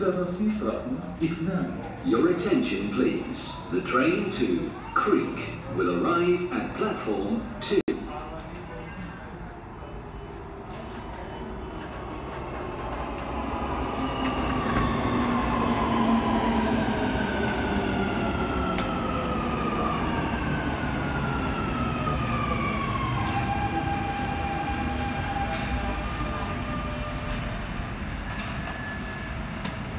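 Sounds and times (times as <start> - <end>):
train rolling rumble: 10.0 - 29.9.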